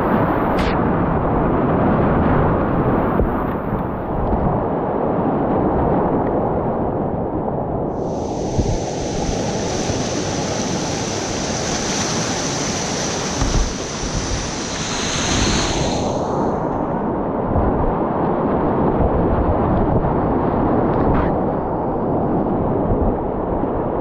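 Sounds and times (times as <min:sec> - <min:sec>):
wind buffeting microphone: 0:00.0 - 0:24.0
high steady hiss: 0:08.0 - 0:16.7
whitewater rushing: 0:08.0 - 0:17.9.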